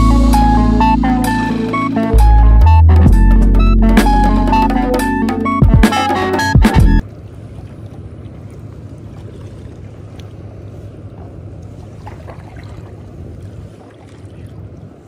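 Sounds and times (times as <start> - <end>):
paddle drips and splashes: 7.0 - 15.0
water lapping at board: 7.0 - 15.0.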